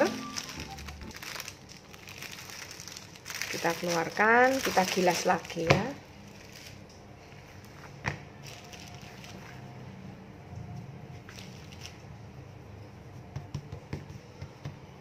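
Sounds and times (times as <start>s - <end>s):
hands patting pastry dough: 12.9s - 15.0s.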